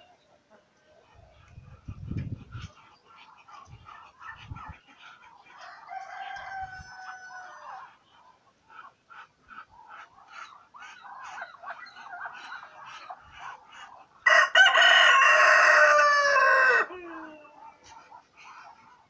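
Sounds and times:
poultry clucking: 0.0 - 19.0
rooster crowing: 5.6 - 7.8, 14.2 - 17.2.

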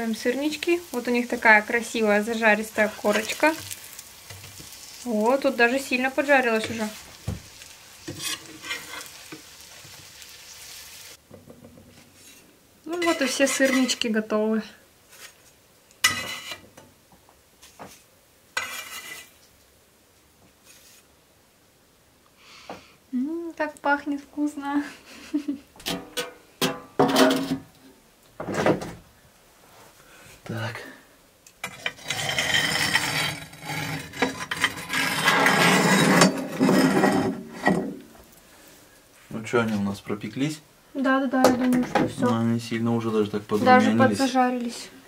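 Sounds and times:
metal scraping on oven floor: 0.1 - 10.0, 11.9 - 14.1, 16.0 - 16.7, 18.6 - 19.4, 27.0 - 27.7, 31.6 - 38.0
metal utensil clinking on pan: 12.9 - 14.0, 16.0 - 16.6.

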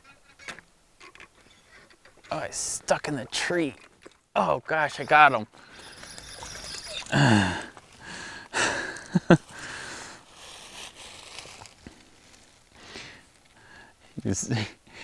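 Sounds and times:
man sighing: 7.0 - 10.1
quiet breathing: 7.0 - 15.0.

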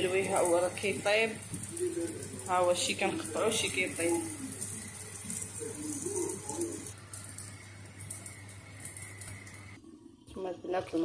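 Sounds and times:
dove cooing: 4.1 - 7.0.

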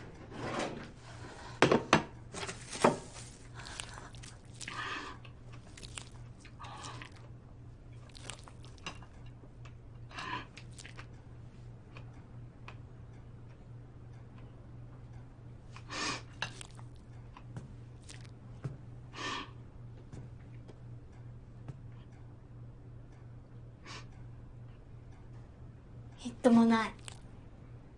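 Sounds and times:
faint low hum: 0.0 - 27.9
wet chewing and mouth sounds: 3.0 - 11.2, 15.7 - 18.7, 26.8 - 27.4.

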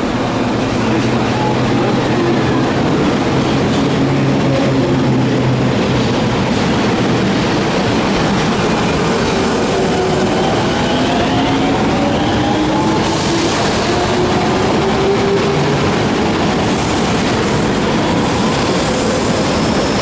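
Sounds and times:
subway train rumbling: 0.0 - 20.0.

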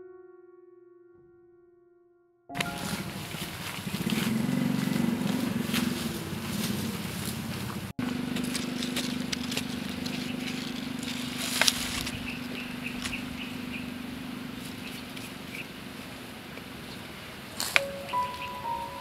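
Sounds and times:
steady low hum: 2.7 - 16.5
soil crumbling: 8.1 - 13.3
metal blade digging soil: 8.4 - 13.2.

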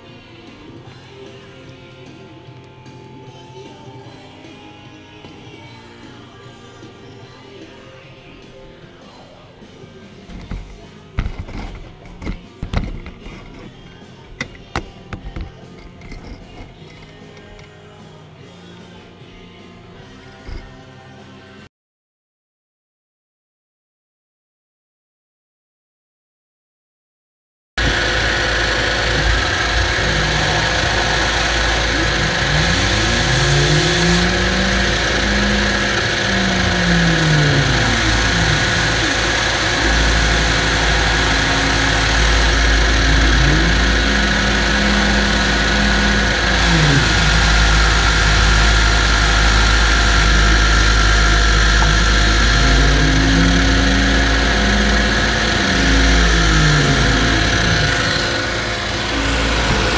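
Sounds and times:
metal chips being sucked: 27.8 - 59.9
shop vacuum whining: 27.8 - 59.9.

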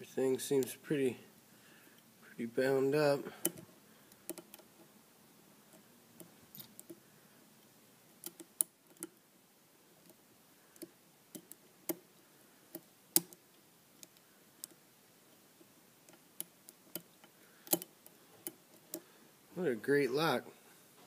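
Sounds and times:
lock pick clicking on pins: 3.4 - 4.7, 8.2 - 9.2, 10.0 - 12.0, 12.7 - 14.8, 16.0 - 19.0.

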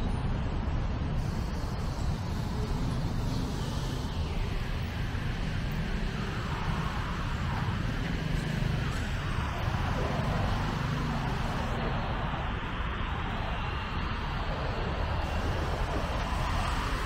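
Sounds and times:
traffic engines and tyres rumble: 0.0 - 17.0
vehicles passing: 0.0 - 17.0.

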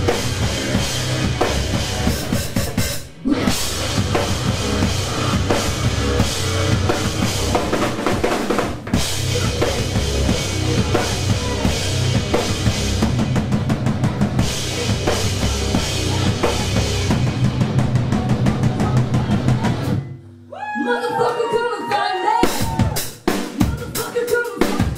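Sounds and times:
bass drum pounding: 0.0 - 20.0
rock band playing: 0.0 - 20.1, 22.4 - 24.9.

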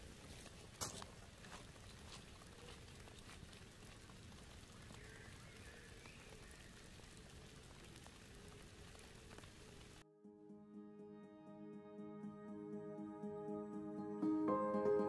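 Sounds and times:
light rain patter in woodland: 0.0 - 10.0
raindrop ticks: 0.1 - 10.0.

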